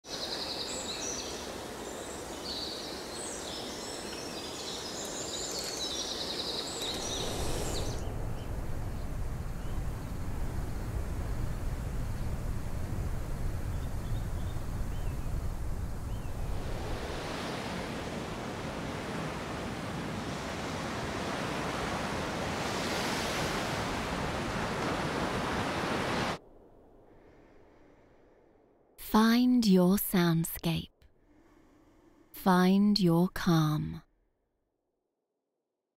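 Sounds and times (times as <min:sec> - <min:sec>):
deep rush of wind: 0:07.0 - 0:21.4
ocean waves surging: 0:16.4 - 0:26.4.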